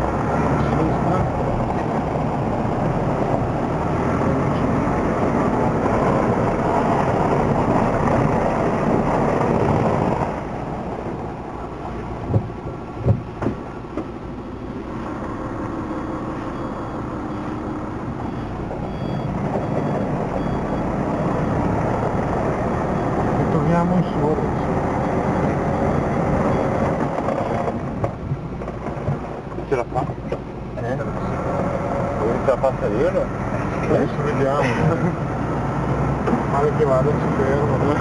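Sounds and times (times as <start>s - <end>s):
truck engine under load: 0.0s - 38.0s
sharp knocks: 12.2s - 14.1s.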